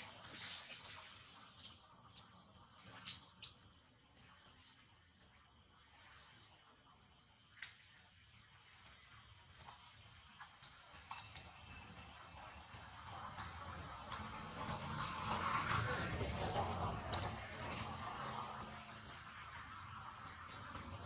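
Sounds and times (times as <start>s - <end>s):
high-pitched insect chorus: 0.0s - 21.0s.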